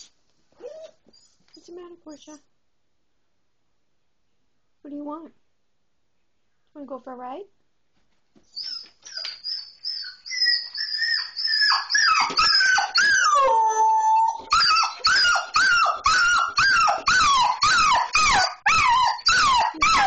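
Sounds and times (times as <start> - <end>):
dog whining: 0.6 - 2.4, 8.5 - 20.0
dog yelping: 8.6 - 20.0.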